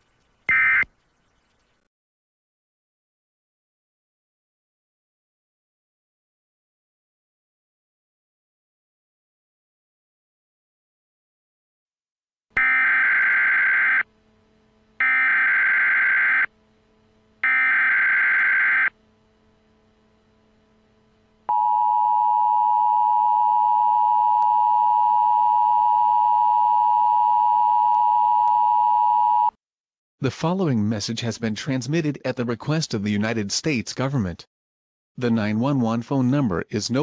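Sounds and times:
buzzy digital data tones: 0.2s - 1.8s, 15.0s - 16.5s, 17.4s - 19.0s
two-tone attention signal: 0.5s - 0.9s.

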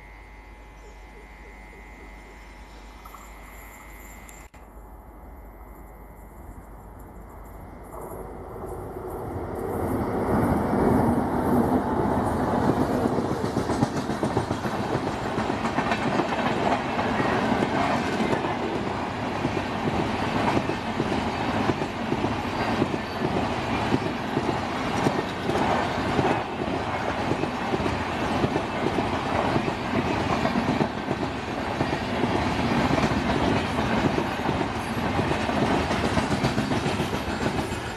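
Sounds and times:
electric locomotive rumble: 0.0s - 37.9s
train wheels clattering over rail joints: 19.4s - 37.9s.

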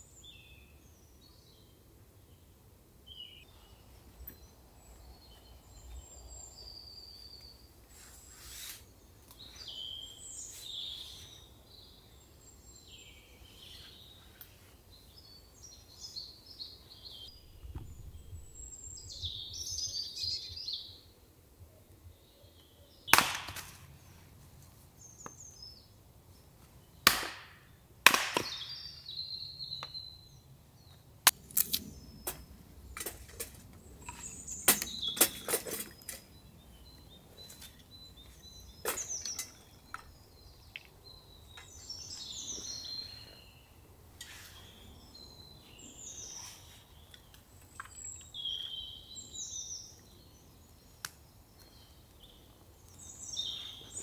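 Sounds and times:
small birds chirping: 0.0s - 27.8s, 28.4s - 54.0s.

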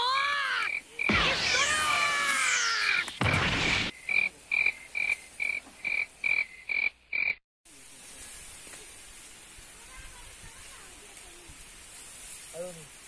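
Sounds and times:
frog croaking: 4.0s - 7.4s
faint steady hiss: 7.7s - 13.0s.

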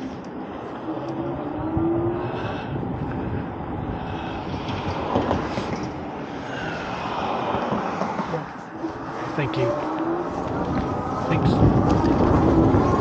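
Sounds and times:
wind rushing over microphone: 0.0s - 13.0s
tyres on pavement: 2.9s - 13.0s.

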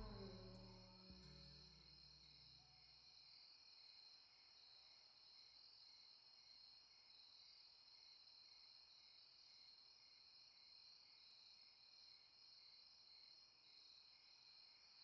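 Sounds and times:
low music tone: 0.0s - 1.8s.

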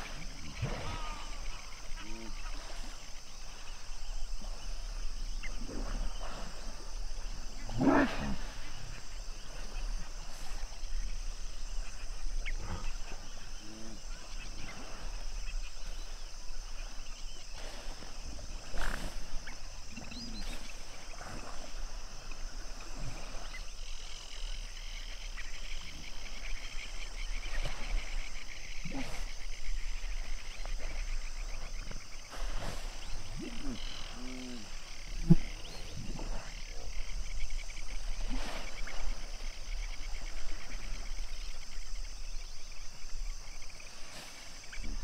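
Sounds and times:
hippos grunting and honking: 0.0s - 2.8s, 7.3s - 9.7s, 32.3s - 37.0s
frogs chorus: 0.0s - 45.0s
insects chattering: 0.0s - 45.0s.

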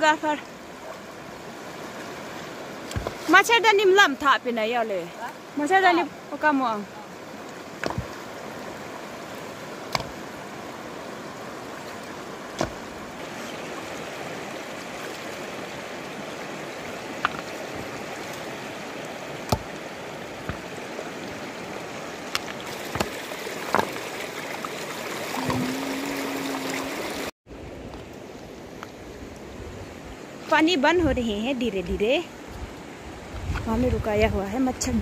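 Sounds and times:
river flowing over rocks: 4.3s - 30.4s
stones knocking together: 7.8s - 8.1s, 17.2s - 17.6s, 20.4s - 20.7s, 22.3s - 24.0s.

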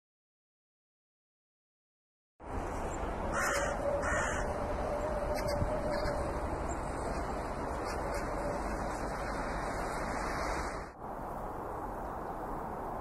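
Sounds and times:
outdoor background noise: 2.4s - 13.0s
crow cawing: 3.3s - 4.6s.

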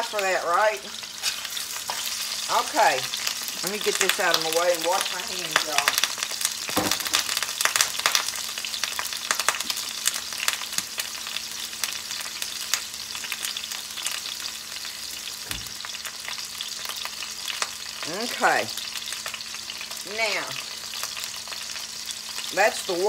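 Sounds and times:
chicken frying in hot oil: 0.0s - 23.0s.

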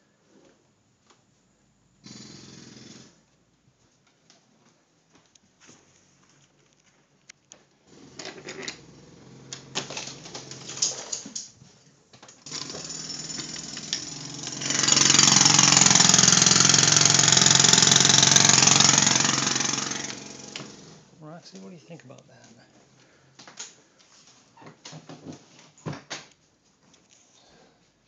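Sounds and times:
jackhammer hammering: 2.0s - 3.2s, 12.4s - 21.1s.

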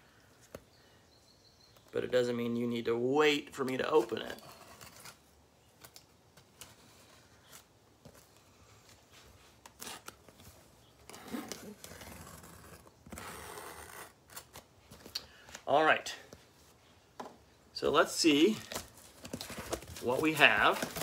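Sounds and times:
packing tape scraping and tearing: 9.6s - 10.3s, 11.0s - 15.2s.

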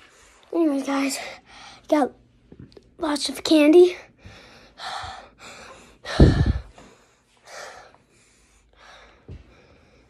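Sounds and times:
boy breathing and sighing: 4.2s - 8.0s
air rumble on microphone: 6.1s - 6.7s.

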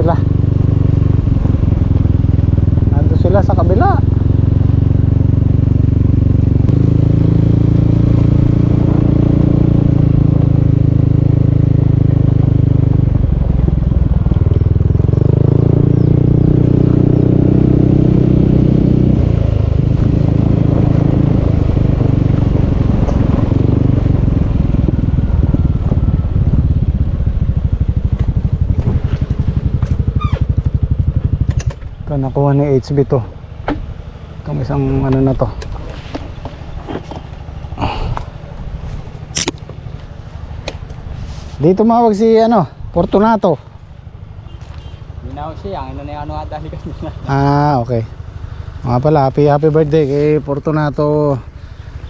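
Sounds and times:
small motorcycle engine running: 0.0s - 32.7s.

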